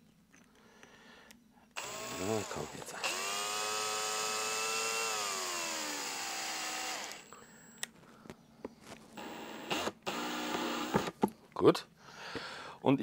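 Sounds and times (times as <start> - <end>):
drill motor whine: 1.8 - 7.4, 9.2 - 11.1.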